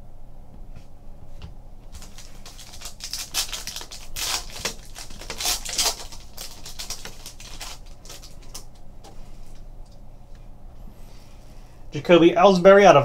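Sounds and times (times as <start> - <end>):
foil wrapper crinkling and tearing: 1.9 - 8.8
cards rustling: 1.9 - 9.7.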